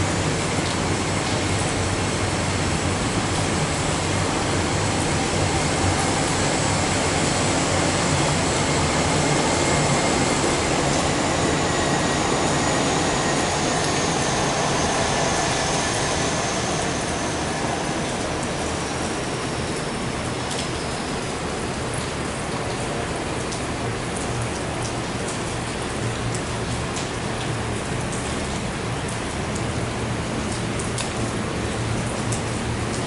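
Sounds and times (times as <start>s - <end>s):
jet engines running: 0.0s - 20.5s.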